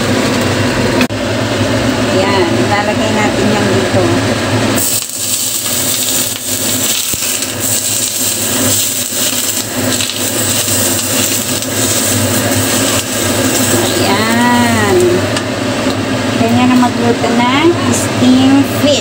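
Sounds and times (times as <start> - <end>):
steady low hum: 0.0 - 19.0
hot oil sizzling: 3.5 - 16.4.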